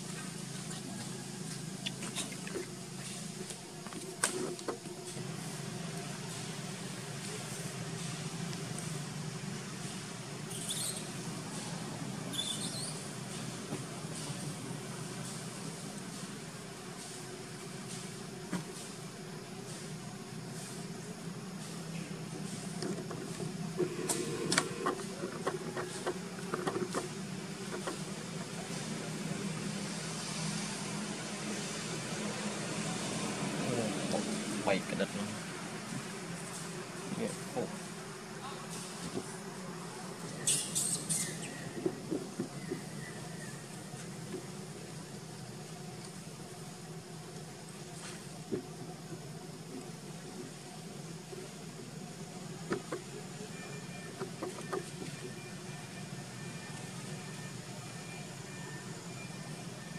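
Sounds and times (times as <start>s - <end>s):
steady low hum: 0.0s - 59.9s
high insect buzz: 1.8s - 13.7s, 40.2s - 59.9s
high squeaky calls: 10.5s - 11.2s, 12.3s - 13.1s, 40.4s - 41.8s.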